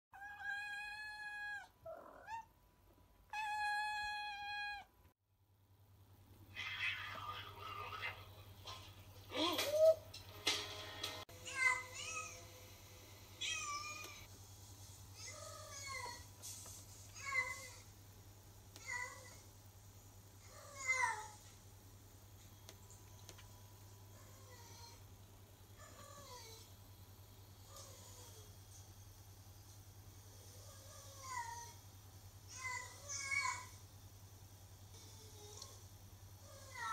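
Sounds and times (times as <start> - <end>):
cat meowing: 0.2 - 2.5, 3.3 - 4.9.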